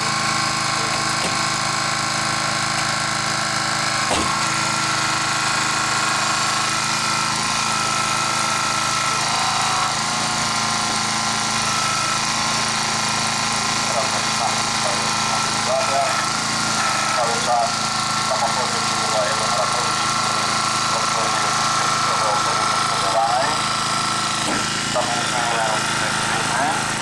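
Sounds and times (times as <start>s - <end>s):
small engine running: 0.0s - 27.0s
sharp knock: 4.1s - 4.4s.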